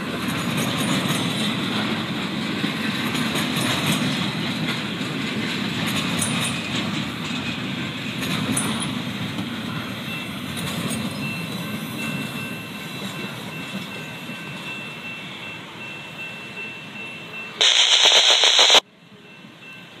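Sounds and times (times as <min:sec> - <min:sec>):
train wheels rolling on rails: 0:00.0 - 0:17.2
loud harsh burst of noise: 0:17.6 - 0:18.8.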